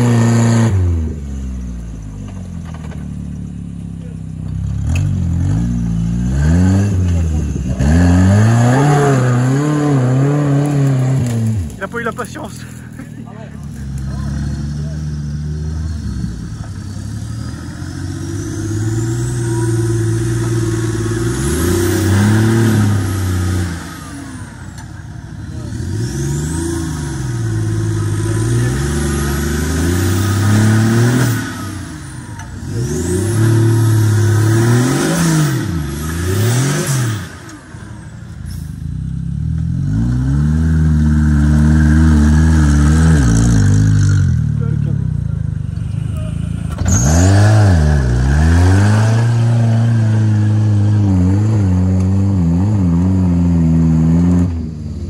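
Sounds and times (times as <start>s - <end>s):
off-road engines revving: 0.0s - 55.0s.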